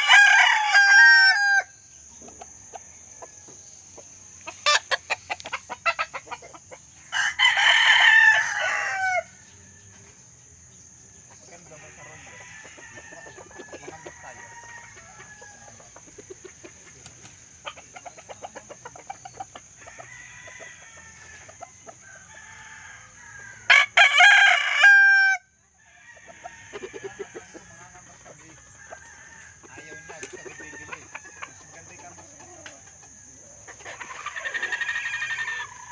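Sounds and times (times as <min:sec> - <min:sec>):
rooster crowing: 0:00.0 - 0:01.8, 0:07.0 - 0:10.2, 0:11.6 - 0:16.1, 0:19.8 - 0:31.9
chickens clucking: 0:01.9 - 0:23.7, 0:25.6 - 0:35.9.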